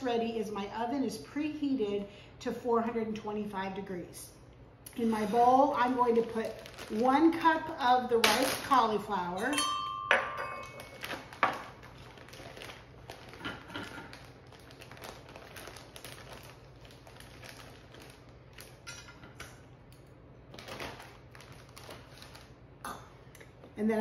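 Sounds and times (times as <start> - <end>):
plastic bag rustling: 4.9 - 9.0, 10.6 - 18.9, 20.5 - 22.7
metal cup clinking on bowl: 9.4 - 11.1.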